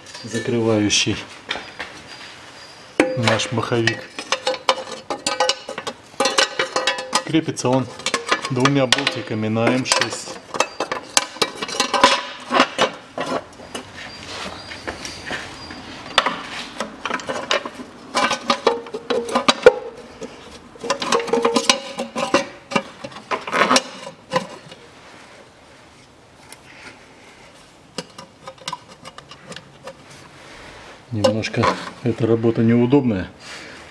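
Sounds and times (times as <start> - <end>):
metal clinks and knocks: 0.0 - 0.8, 3.0 - 14.1, 16.1 - 24.8, 27.9 - 30.0.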